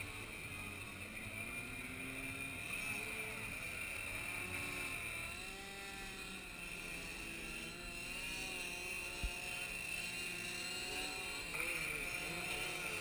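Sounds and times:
model airplanes buzzing: 0.0 - 13.0.

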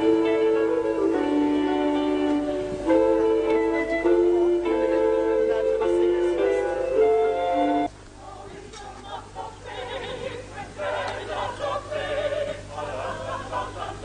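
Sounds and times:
instrumental tune: 0.0 - 8.0
group of voices singing: 8.2 - 14.0.

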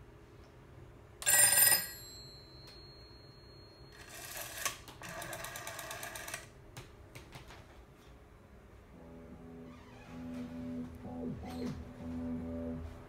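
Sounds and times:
telephone bell ringing: 1.2 - 6.4.

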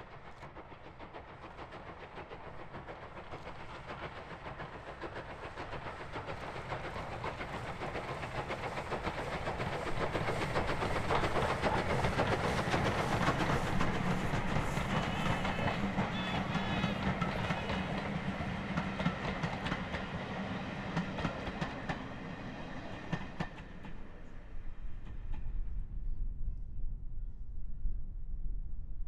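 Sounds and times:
steam train approaching: 0.0 - 26.2.

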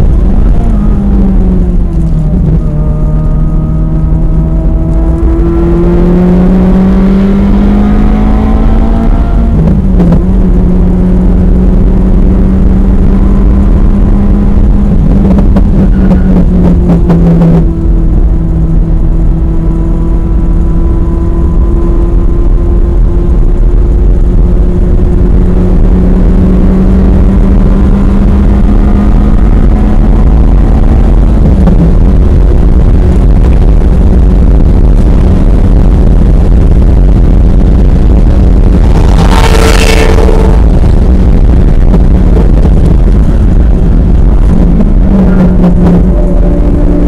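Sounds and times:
passing car engine: 0.0 - 23.1, 37.7 - 47.0
car engine at speed: 0.0 - 47.0
road and wind rumble: 0.0 - 47.0.

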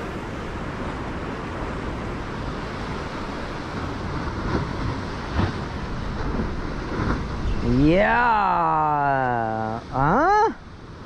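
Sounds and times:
wind buffeting the microphone: 0.0 - 8.4
surf breaking: 0.0 - 10.0.

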